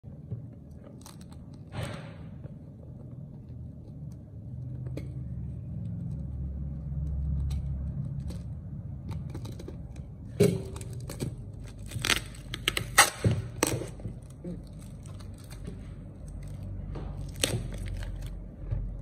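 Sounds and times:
plastic wrap crinkling: 0:09.2 - 0:18.4
plastic wrap rubbing and handling: 0:09.2 - 0:19.0.

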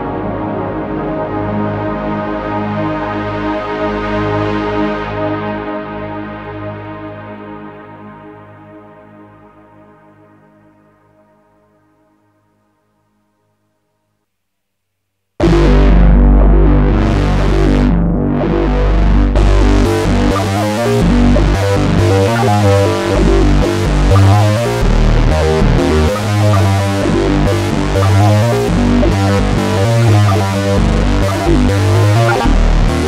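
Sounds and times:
synthesizer bass notes: 0:15.4 - 0:33.0.

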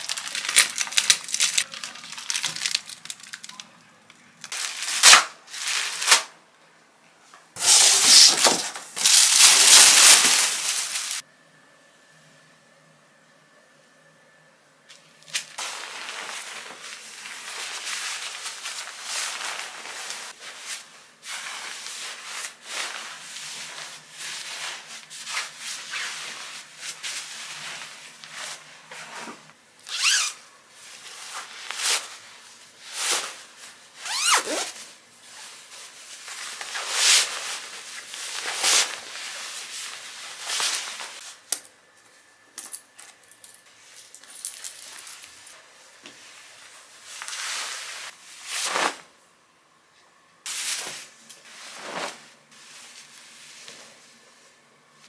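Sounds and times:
bedding fabric rustling: 0:15.6 - 0:29.2, 0:50.5 - 0:54.1.

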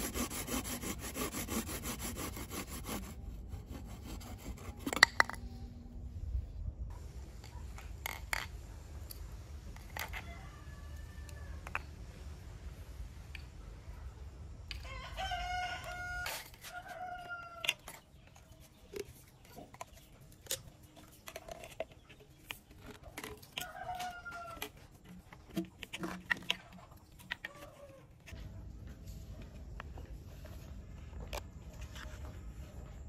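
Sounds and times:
plastic pipes clicking and knocking: 0:04.8 - 0:05.4, 0:17.6 - 0:27.7
rooster crowing: 0:10.1 - 0:11.8, 0:14.8 - 0:17.7.

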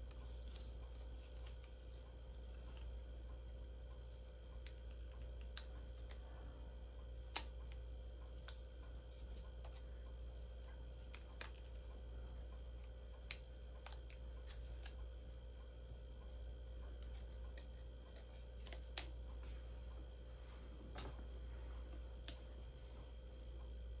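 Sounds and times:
low steady hum: 0:00.0 - 0:24.0
paper clicks and crackles: 0:07.2 - 0:15.2, 0:16.8 - 0:19.5.

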